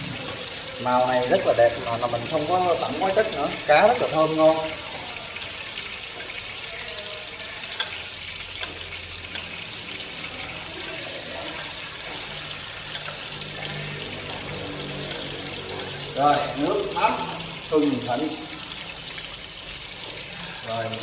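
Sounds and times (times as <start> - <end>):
fish sizzling in oil: 0.0 - 21.0
metal spoon clinking in bowl: 7.6 - 9.6.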